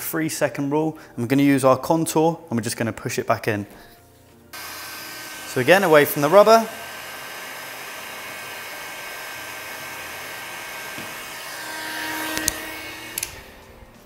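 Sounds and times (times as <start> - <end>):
heat gun fan hiss: 4.6 - 14.0
heat gun switch clicks: 12.3 - 13.4.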